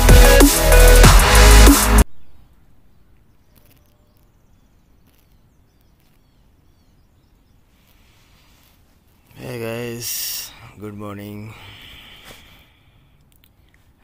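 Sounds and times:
drum and bass music: 0:00.0 - 0:02.0
faint background noise: 0:02.0 - 0:14.0.

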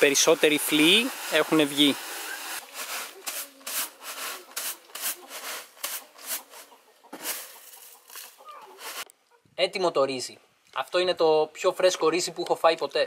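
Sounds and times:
rice swishing in wooden mortar: 0:00.6 - 0:09.1.

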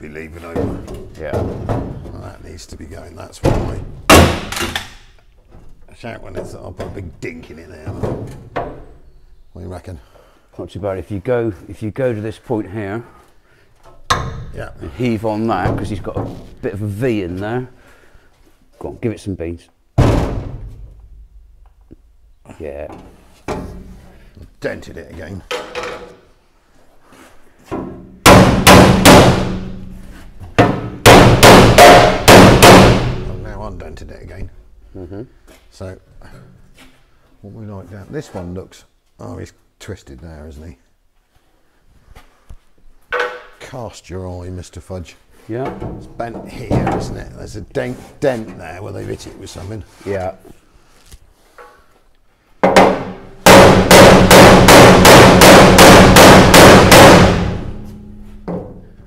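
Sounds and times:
hammer blows ringing on metal: 0:28.2 - 0:29.8, 0:31.0 - 0:33.4, 0:52.6 - 0:57.8
hammer blows on steel: 0:31.0 - 0:33.3.

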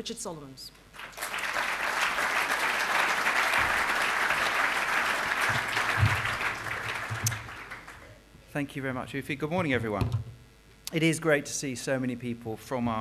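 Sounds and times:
audience applauding: 0:00.9 - 0:08.2.

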